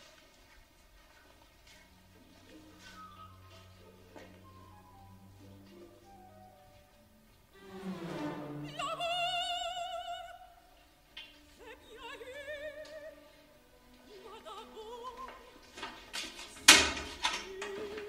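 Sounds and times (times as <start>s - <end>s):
wordless opera-style singing: 7.6s - 18.0s.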